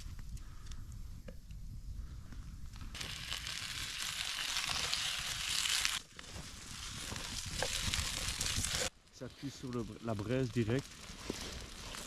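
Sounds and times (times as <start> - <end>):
potatoes sizzling in a pan: 3.0 - 12.0.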